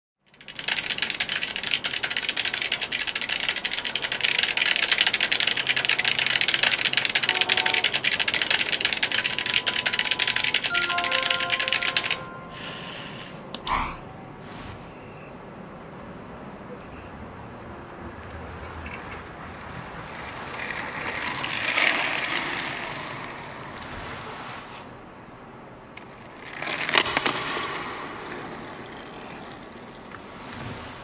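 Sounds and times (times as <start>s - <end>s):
rapid typing on keyboard: 0.3s - 12.5s
sweeping notification sound: 9.8s - 13.0s.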